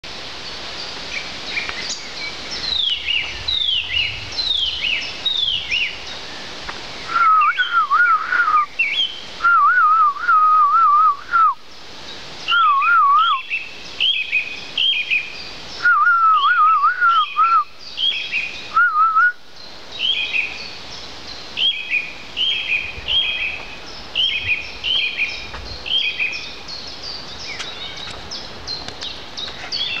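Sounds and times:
high whistled bird notes: 7.0 - 11.6, 12.5 - 19.4
lower warbling bird whistles: 7.1 - 11.6, 12.5 - 19.4.

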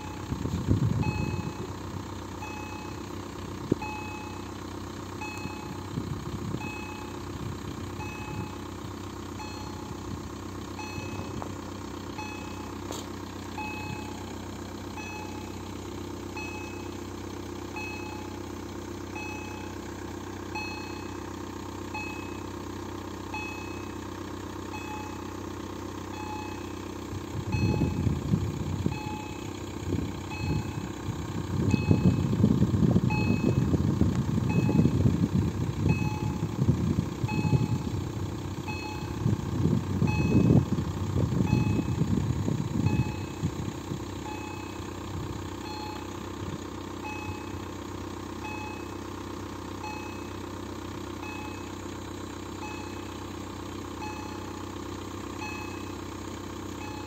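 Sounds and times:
cars idling: 0.0 - 57.0
loud uneven low rumble: 0.0 - 57.0
electronic crossing ding: 10.8 - 11.4, 35.9 - 36.5, 54.0 - 54.5, 55.4 - 55.9, 56.8 - 57.0.

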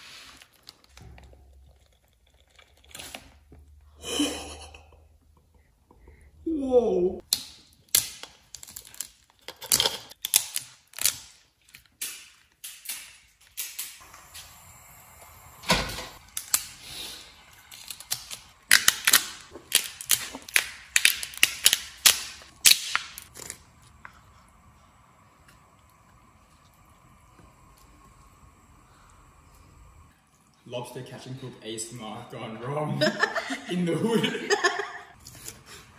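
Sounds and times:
lobster shell cracking: 7.2 - 13.9, 16.3 - 16.8, 17.7 - 24.0.

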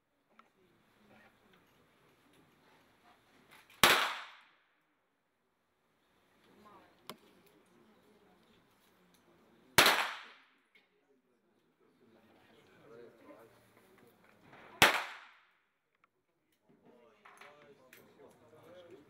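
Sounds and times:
pistol shots with ringing echo: 3.8 - 4.6, 9.8 - 10.5, 14.8 - 15.5.

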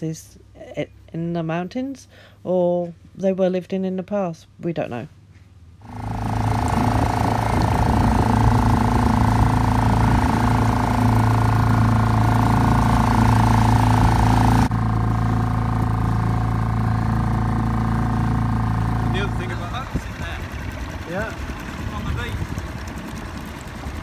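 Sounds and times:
outboard motor running: 5.8 - 24.0
rush of wind and water: 6.3 - 11.6.

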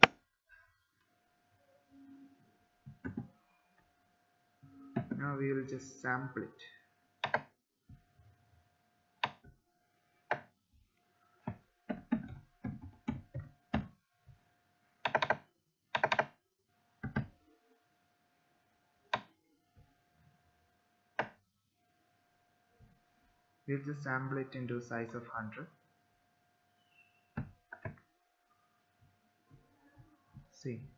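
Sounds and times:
computer keyboard typing: 7.2 - 7.5, 11.4 - 13.9, 15.0 - 16.4.

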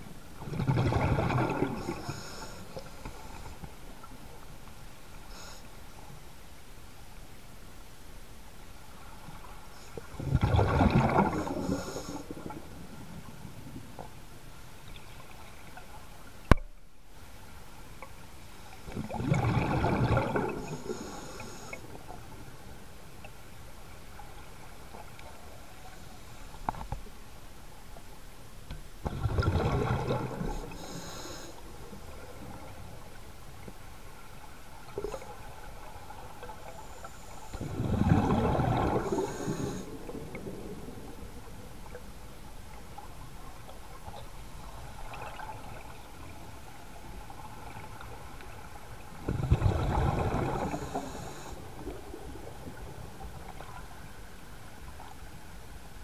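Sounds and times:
diver's exhaled bubbles gurgling: 0.4 - 2.4, 10.1 - 12.7, 18.9 - 21.1, 29.0 - 31.0, 37.6 - 41.2, 49.1 - 53.7
underwater hiss: 1.0 - 4.1, 5.2 - 6.1, 9.4 - 13.2, 18.4 - 22.4, 29.4 - 33.2, 33.8 - 41.0, 48.6 - 52.8.

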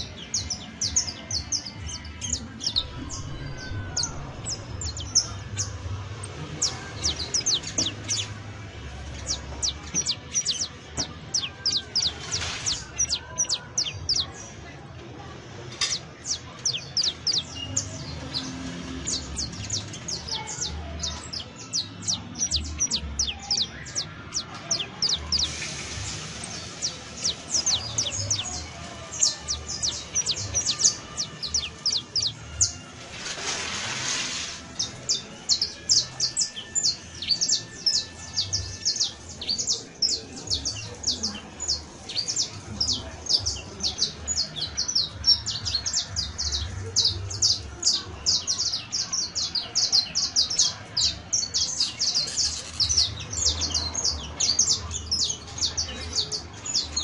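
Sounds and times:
finch singing high chirps: 0.0 - 14.6, 15.7 - 57.0.

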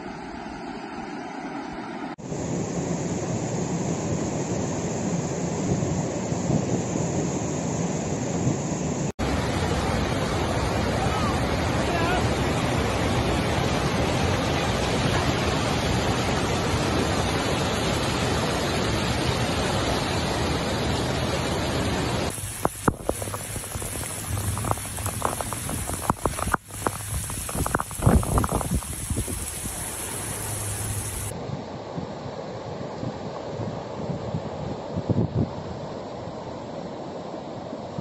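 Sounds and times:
floodwater rushing: 9.2 - 31.3
heavy rain: 9.2 - 31.3
wind buffeting microphone: 22.3 - 35.8.

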